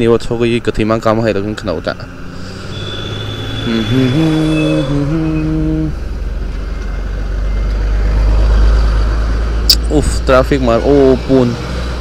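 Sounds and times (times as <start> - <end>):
thin high tone: 2.4 - 6.8.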